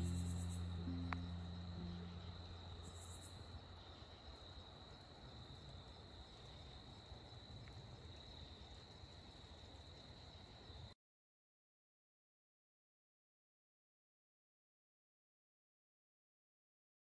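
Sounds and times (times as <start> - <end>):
faint low rumble: 0.0 - 4.6
crickets trilling: 0.0 - 10.9.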